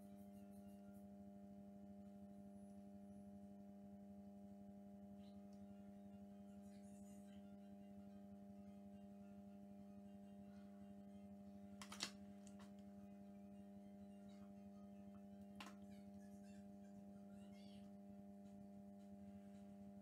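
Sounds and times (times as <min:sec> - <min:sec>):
low electrical hum: 0:00.0 - 0:20.0
paper handling clicks: 0:11.8 - 0:12.8.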